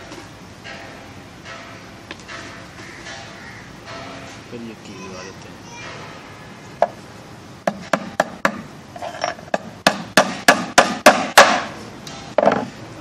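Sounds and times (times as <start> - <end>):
hammer striking nail into wood: 7.7 - 8.7, 9.5 - 11.8.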